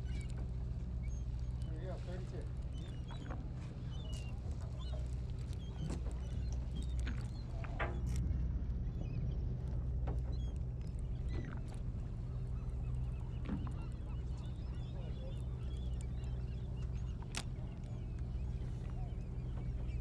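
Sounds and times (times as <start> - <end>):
boat engine humming: 0.0 - 20.0
birds chirping and squawking: 12.3 - 17.0.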